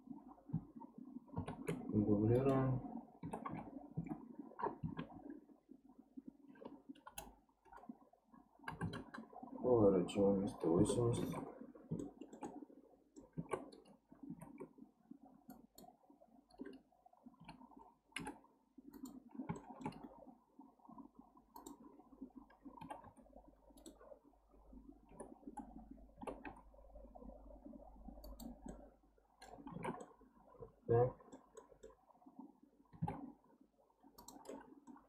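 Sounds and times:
low steady hum: 0.0 - 35.0
mouse and keyboard clicking: 34.2 - 35.0.

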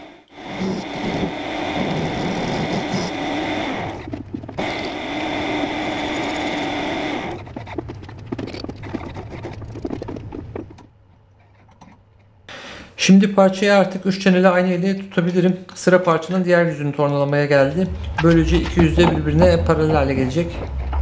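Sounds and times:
metal lathe cutting steel: 0.4 - 7.4
clicks and scrapes: 6.1 - 12.4.

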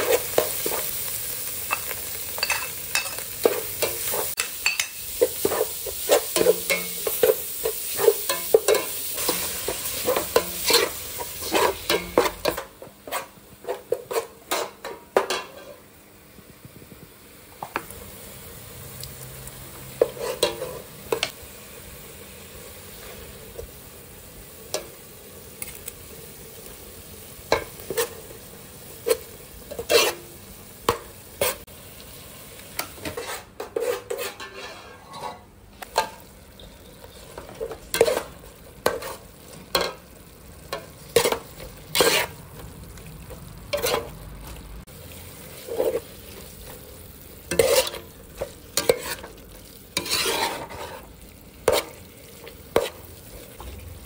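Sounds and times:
paste sizzling in a pot: 0.0 - 54.0
ladle scraping a metal pot: 20.0 - 21.3, 29.7 - 30.2, 33.0 - 35.4, 41.2 - 42.4, 43.7 - 44.1, 47.5 - 49.4, 50.0 - 52.0.

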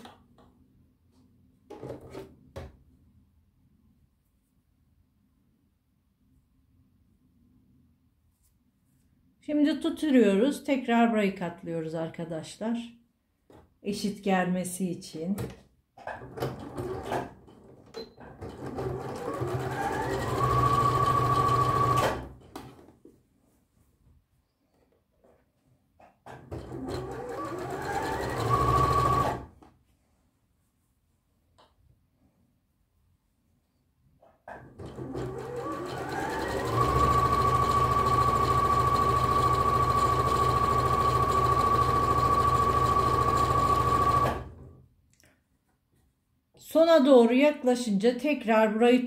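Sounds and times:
sewing machine motor whine: 18.8 - 22.2, 34.9 - 44.5.

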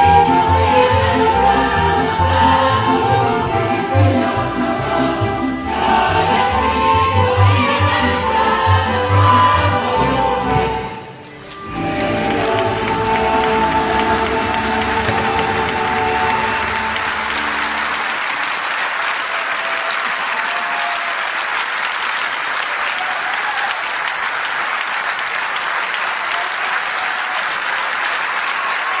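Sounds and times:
ensemble music: 0.0 - 18.3
audience applauding: 8.6 - 29.0.

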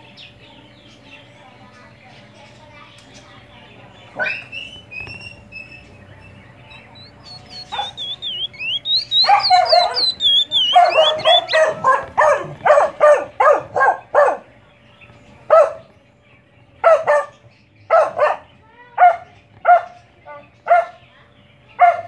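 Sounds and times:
bird whistling high notes: 6.8 - 11.6
dog barking: 7.2 - 8.1, 9.1 - 14.5, 15.5 - 15.9, 16.8 - 20.0, 20.6 - 21.0, 21.8 - 22.0.

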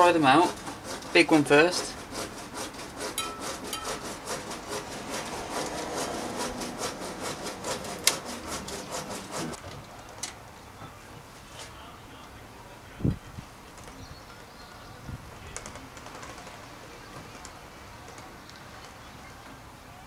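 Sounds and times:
brake cable scraping: 0.0 - 9.6.

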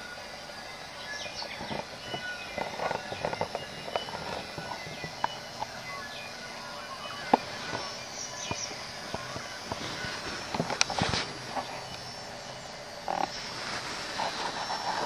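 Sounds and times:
bellbirds singing: 0.0 - 13.6.

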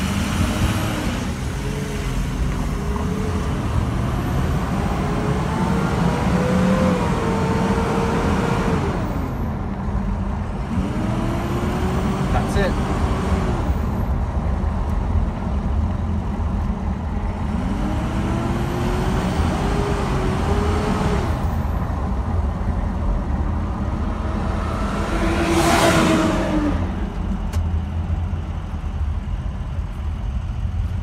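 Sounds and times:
diesel engine running in cab: 0.0 - 31.0
engine whine: 0.0 - 31.0
rushing air: 23.2 - 27.4.

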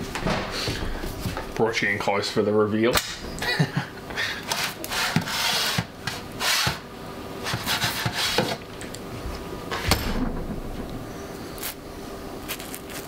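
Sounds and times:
baking tray scraping: 4.5 - 8.6.

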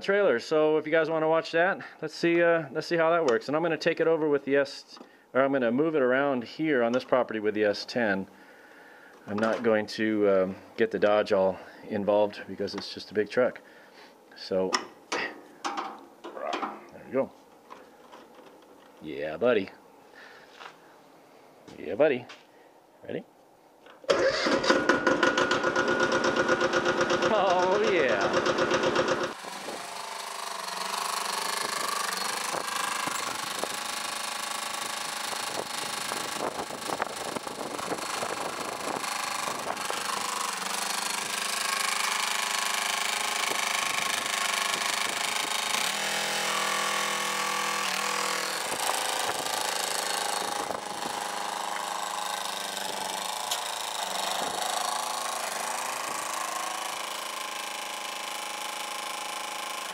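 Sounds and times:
tractor diesel engine running: 24.1 - 45.9.

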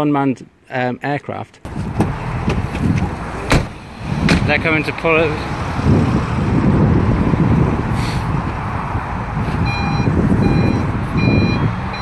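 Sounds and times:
low rumble of van manoeuvring: 1.7 - 12.0
van reversing alarm beeping: 9.6 - 12.0.

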